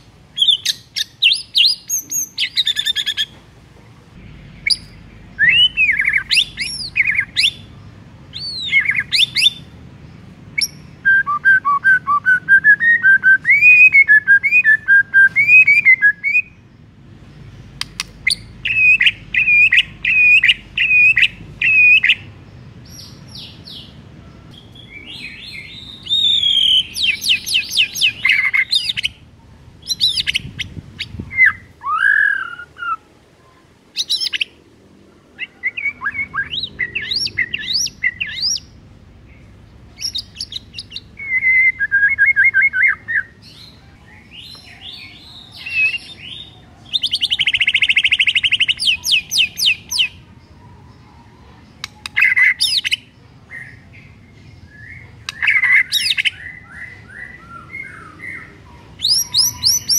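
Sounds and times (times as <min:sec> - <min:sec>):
songbird singing trills and whistles: 0:00.3 - 0:03.4, 0:04.5 - 0:33.1, 0:33.9 - 0:34.6, 0:35.3 - 0:59.9
bird rapid chatter: 0:17.7 - 0:22.3.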